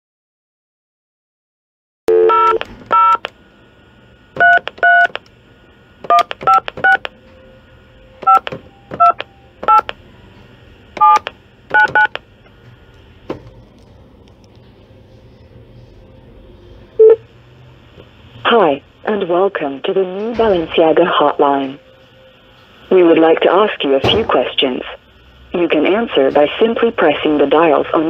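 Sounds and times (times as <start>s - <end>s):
phone keypad dial tones: 2.1s - 3.3s, 4.4s - 5.2s, 6.1s - 7.1s, 8.2s - 10.0s, 11.0s - 12.2s.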